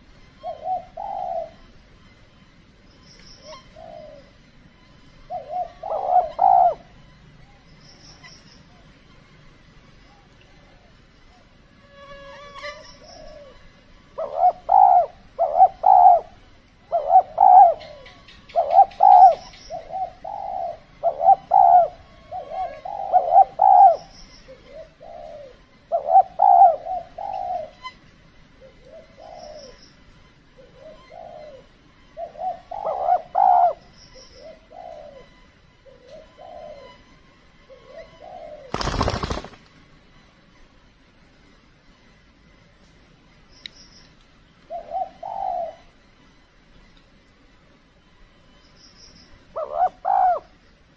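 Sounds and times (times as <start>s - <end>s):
doves cooing: 0.0s - 1.8s, 3.4s - 4.4s, 5.1s - 9.0s, 13.0s - 27.9s, 28.5s - 29.8s, 30.5s - 37.0s, 37.6s - 39.6s, 44.7s - 46.0s, 49.5s - 50.6s.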